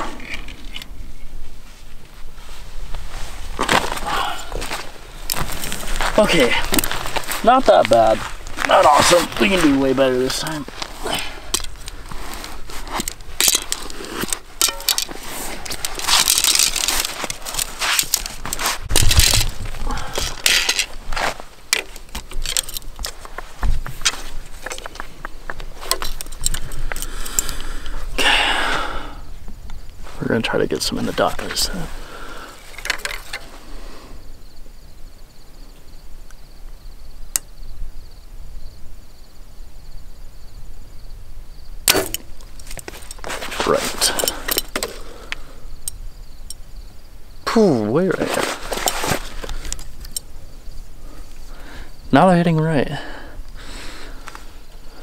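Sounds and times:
low wind rumble: 0.0s - 32.7s
insects trilling: 3.6s - 55.0s.

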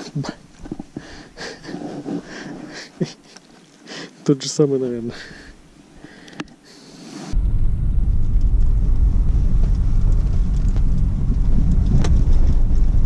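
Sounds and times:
car engine and tyres rumbling: 7.3s - 13.0s.

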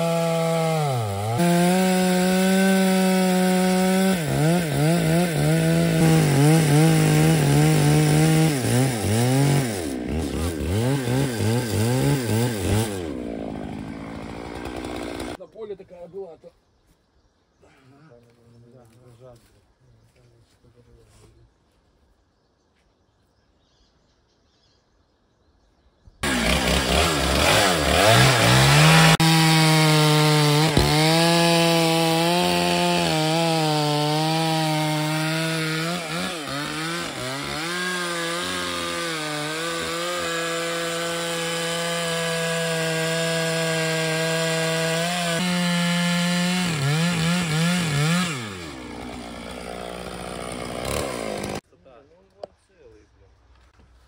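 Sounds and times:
chainsaw cutting log: 0.0s - 15.4s, 26.2s - 51.6s.

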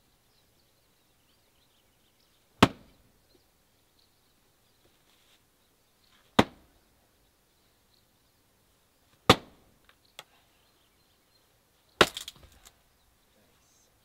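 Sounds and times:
axe chopping wood: 2.6s - 3.0s, 6.3s - 6.7s, 9.2s - 9.6s, 12.0s - 12.5s.

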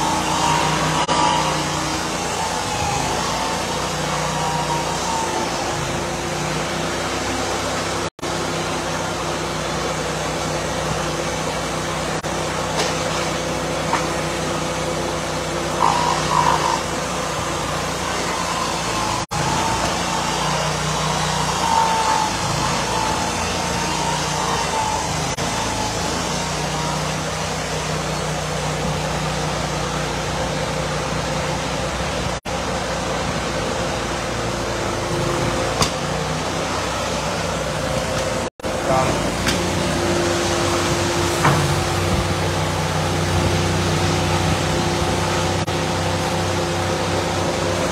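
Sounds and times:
high saw squeals: 0.0s - 32.0s
band sawmill cutting wood: 0.0s - 47.9s.

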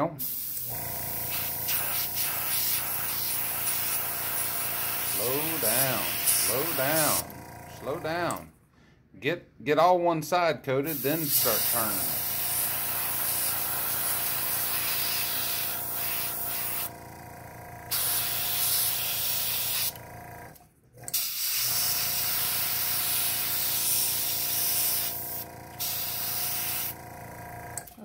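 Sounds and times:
airbrush hiss: 0.2s - 7.2s, 10.9s - 16.9s, 17.9s - 19.9s, 21.2s - 26.9s.

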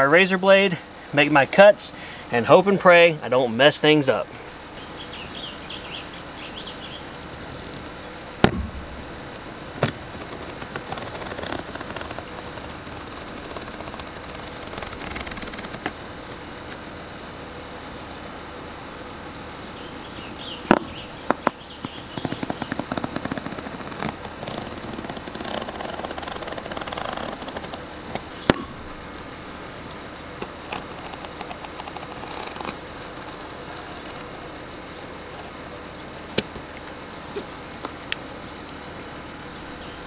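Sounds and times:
sharp clicks: 7.7s - 16.4s
knife cutting pool liner: 9.8s - 16.0s, 22.2s - 27.8s.

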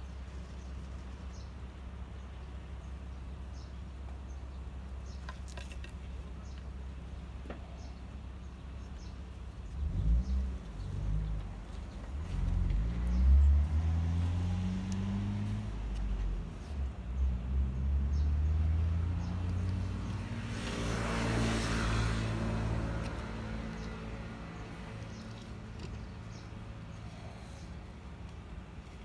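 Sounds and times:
vehicle engine running: 5.8s - 29.0s
vehicle passing by: 9.6s - 28.0s.

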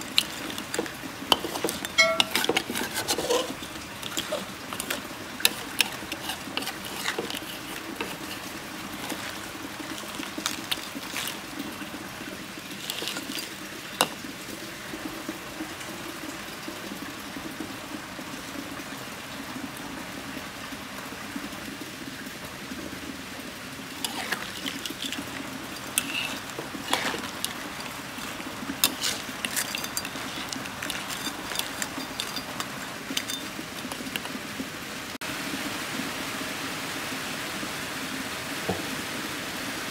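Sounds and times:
spatula scraping shells and pan: 0.0s - 12.0s, 12.6s - 14.3s, 24.0s - 34.7s
liquid hissing in a wok: 0.0s - 16.4s, 22.8s - 39.9s.

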